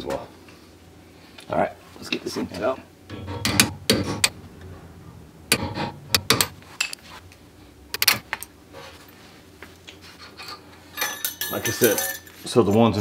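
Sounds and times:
screwdriver clinking on metal: 0:10.9 - 0:12.8.

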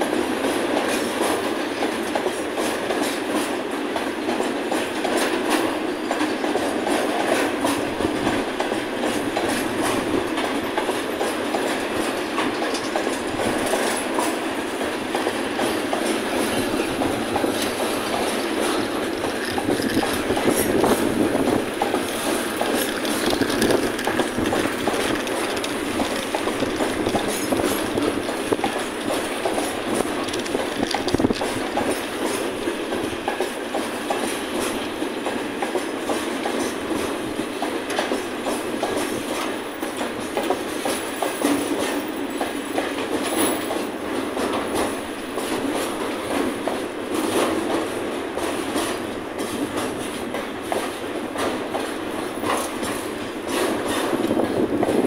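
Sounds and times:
freight train rolling past: 0:00.0 - 0:55.0
wheels knocking over rail joints: 0:15.1 - 0:32.4.

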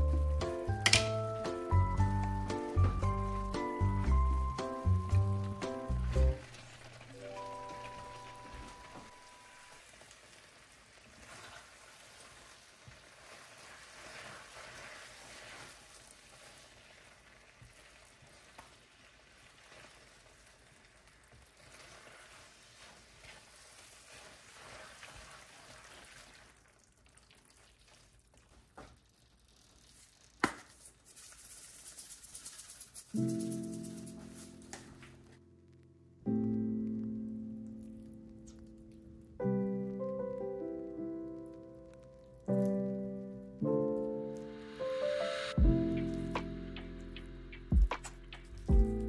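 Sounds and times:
pasta stirring and sizzling in pan: 0:00.0 - 0:35.3
tongs click: 0:00.8 - 0:01.2.

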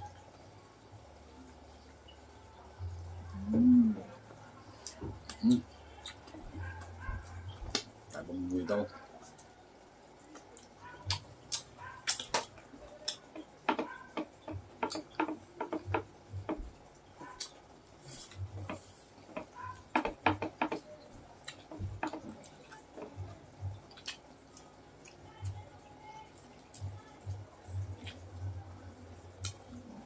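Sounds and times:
chewing and mouth smacking: 0:10.2 - 0:15.8, 0:17.2 - 0:20.0, 0:21.4 - 0:25.6, 0:27.8 - 0:28.4, 0:29.4 - 0:29.9
soft low thumps: 0:15.7 - 0:16.8, 0:21.7 - 0:22.4.

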